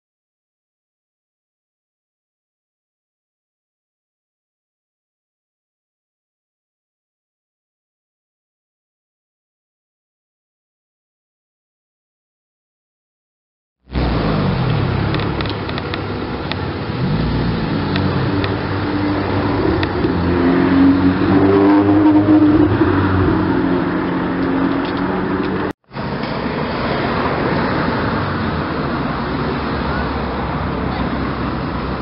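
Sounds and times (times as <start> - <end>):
road noise: 13.8 - 32.0
sports car engines revving: 13.9 - 32.0.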